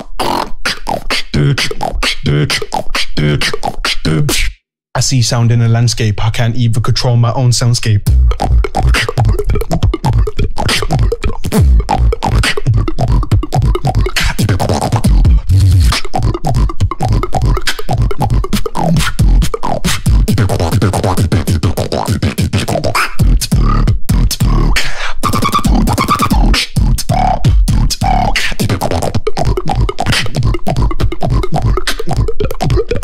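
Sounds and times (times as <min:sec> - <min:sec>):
beatboxing into a microphone: 0:00.0 - 0:33.0.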